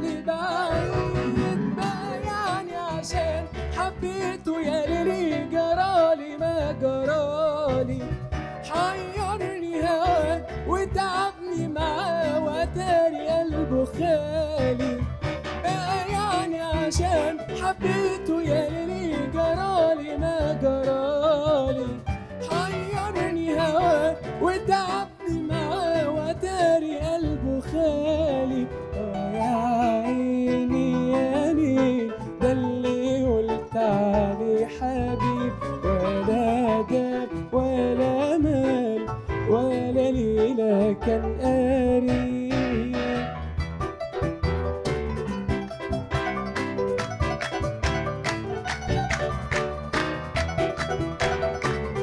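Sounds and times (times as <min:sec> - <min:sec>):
man singing: 0:00.0 - 0:43.6
qanun: 0:44.0 - 0:52.0.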